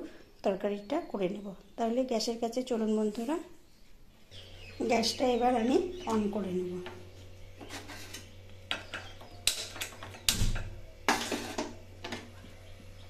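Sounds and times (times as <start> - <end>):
gas hob igniter clicks: 8.7 - 12.2.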